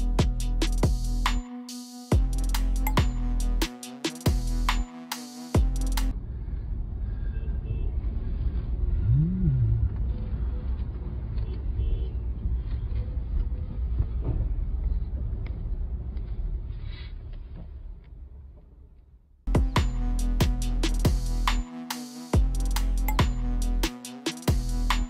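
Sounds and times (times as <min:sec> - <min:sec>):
road vehicles rumbling: 0:06.1 - 0:17.9
rising and falling note: 0:09.0 - 0:10.0.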